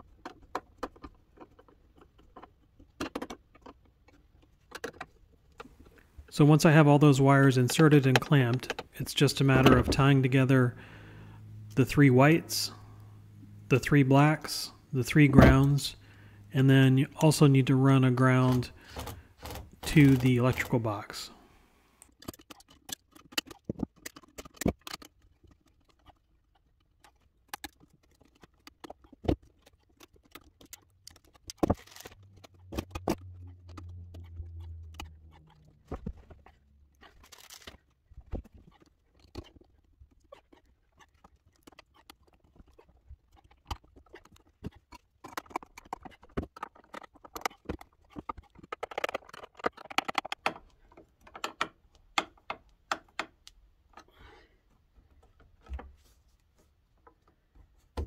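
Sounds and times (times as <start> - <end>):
low hum: 31.9 - 37.0
metal clicks and taps: 43.7 - 54.1.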